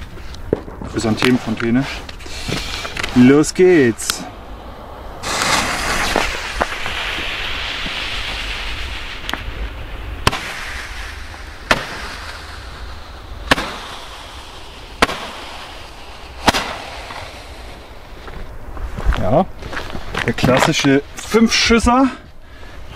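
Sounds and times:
firework fuse hissing: 1.8s - 3.4s, 5.2s - 18.6s.

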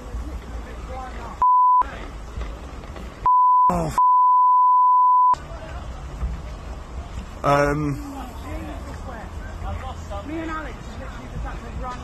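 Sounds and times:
low noisy outdoor rumble: 0.0s - 4.0s, 5.4s - 12.0s
censor bleep: 1.4s - 1.8s, 3.3s - 5.4s.

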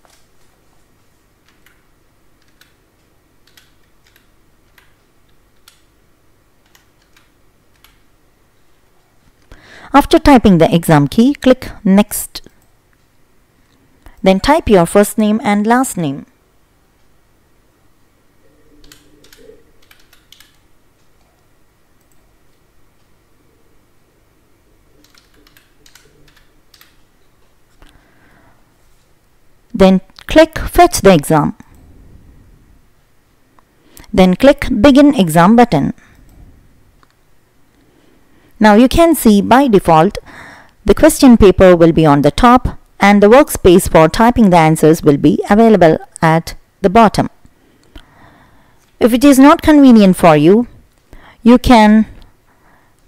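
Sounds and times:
computer keyboard typing: 1.4s - 6.0s, 6.6s - 8.1s, 18.7s - 22.6s, 24.9s - 27.1s.

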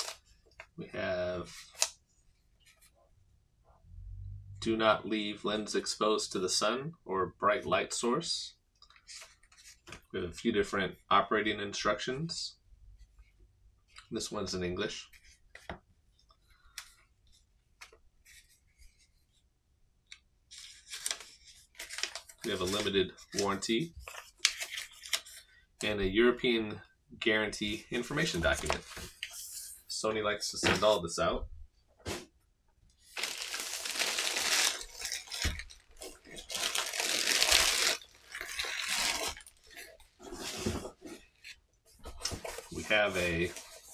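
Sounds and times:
paper rustling: 20.5s - 25.5s, 33.0s - 43.9s
plastic bag crinkling: 33.1s - 39.9s.

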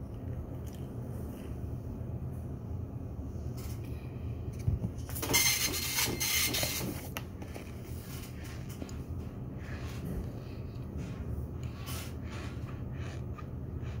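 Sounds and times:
steady low hum: 0.0s - 14.0s
office printer running: 5.1s - 8.8s.

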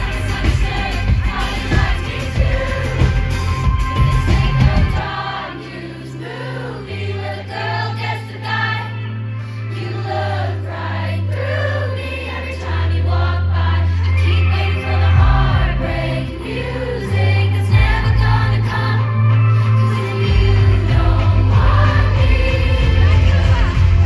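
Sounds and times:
drums: 0.0s - 5.4s, 14.5s - 16.3s, 17.2s - 24.0s
pop song singing: 0.0s - 24.0s
held bass notes: 19.9s - 24.0s.

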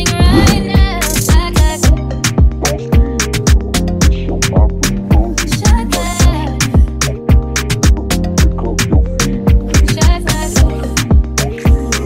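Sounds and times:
sustained synth tones: 0.0s - 1.1s
kick drum thumps: 0.0s - 2.0s.

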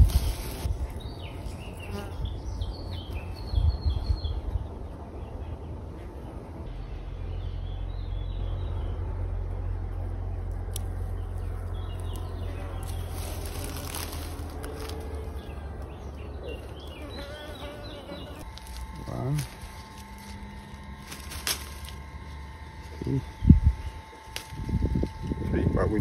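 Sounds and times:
bees buzzing: 0.0s - 3.4s, 10.1s - 25.5s
small birds chirping: 0.0s - 6.4s, 9.6s - 25.4s.

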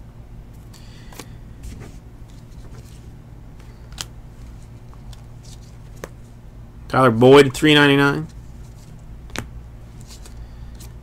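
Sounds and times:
low steady hum: 0.0s - 11.0s
cards rustling: 0.6s - 6.3s, 7.6s - 11.0s.

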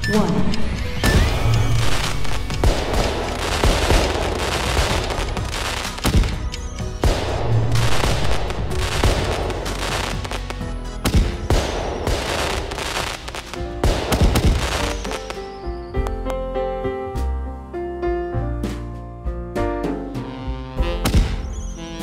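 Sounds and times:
music: 0.0s - 22.0s
fireworks bangs and crackling: 1.0s - 15.6s, 21.0s - 22.0s
fireworks fizzing: 1.0s - 15.6s.

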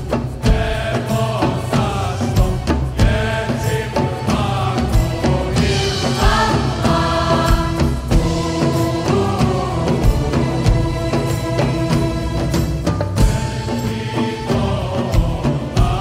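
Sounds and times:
choir singing a hymn: 0.0s - 16.0s
instrumental accompaniment: 0.0s - 16.0s
low recurring beat: 4.2s - 11.2s.

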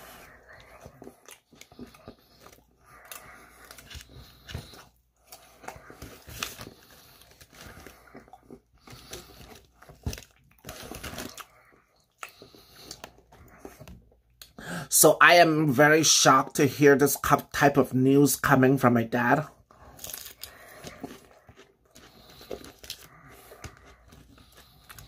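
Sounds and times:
person biting and chewing: 0.0s - 14.5s, 19.7s - 25.0s.

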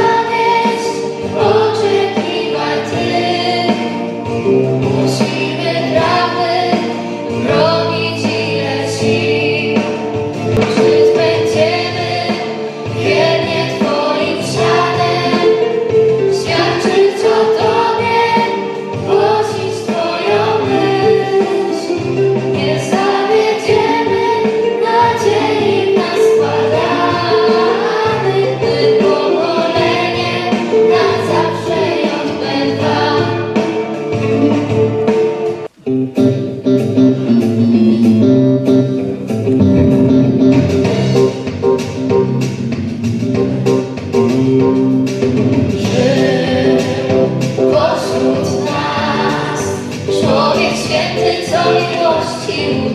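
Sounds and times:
girls choir singing: 0.0s - 10.0s, 10.6s - 35.7s, 45.8s - 52.9s
instrumental accompaniment with bass: 0.0s - 52.9s.

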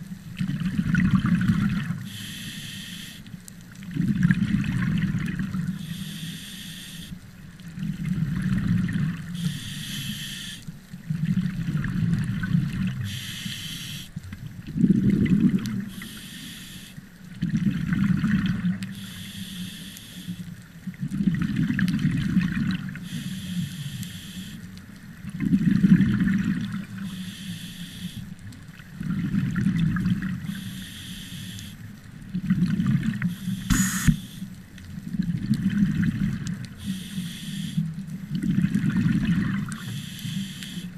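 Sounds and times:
exhaled bubbles rumbling: 0.0s - 2.1s, 3.8s - 5.8s, 7.6s - 9.6s, 11.0s - 13.2s, 14.2s - 16.0s, 17.3s - 18.9s, 20.8s - 23.0s, 24.9s - 27.0s, 28.7s - 30.5s, 32.1s - 34.0s, 34.9s - 36.8s, 37.8s - 39.9s
regulator hissing on inhale: 2.0s - 3.3s, 5.8s - 7.2s, 9.3s - 10.7s, 13.0s - 14.2s, 15.9s - 17.0s, 18.9s - 20.5s, 23.0s - 24.7s, 27.0s - 28.3s, 30.4s - 31.8s, 33.3s - 34.6s, 36.8s - 37.9s, 39.8s - 40.9s
sharp click: 33.6s - 34.3s.

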